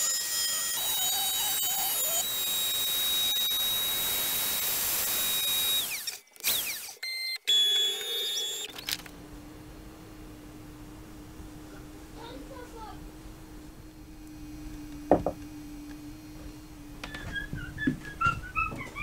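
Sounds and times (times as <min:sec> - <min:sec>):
router spindle whine: 0:00.0 - 0:19.0
low steady hum: 0:08.8 - 0:18.2.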